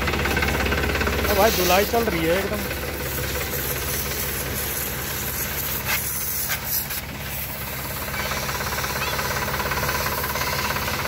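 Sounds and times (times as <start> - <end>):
diesel tractor idling: 0.0 - 11.0
water jet spraying hiss: 1.1 - 11.0.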